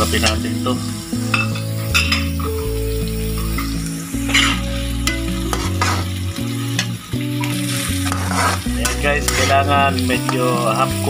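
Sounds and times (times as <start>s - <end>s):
low held notes: 0.0s - 10.8s
vegetables sizzling in hot oil: 0.0s - 11.0s
metal spatula scraping wok: 3.6s - 10.4s.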